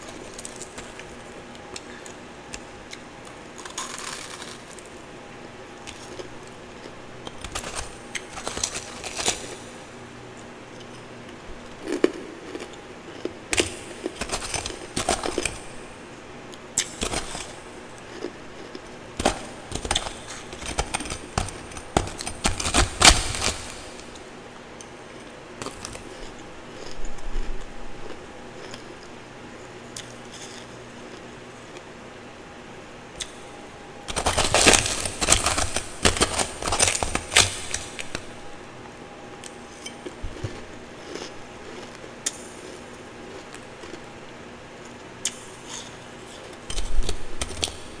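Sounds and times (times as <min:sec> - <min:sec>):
ice crunching being chewed: 0:00.0 - 0:04.9, 0:10.7 - 0:15.7, 0:16.8 - 0:24.2, 0:25.1 - 0:31.9, 0:39.4 - 0:47.6.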